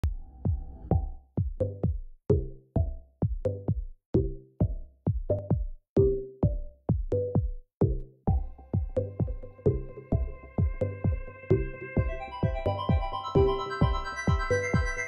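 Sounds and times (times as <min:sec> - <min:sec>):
drum machine beat: 0:00.0 - 0:15.0
electronic notes: 0:11.5 - 0:15.0.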